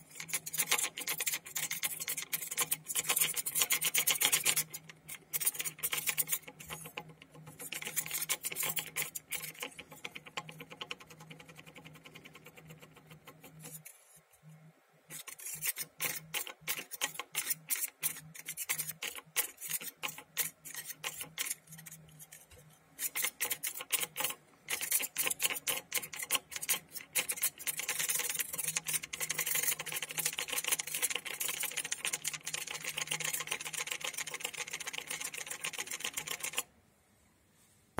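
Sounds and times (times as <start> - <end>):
spinning bowl clicking and rattling: 23.1 - 36.7.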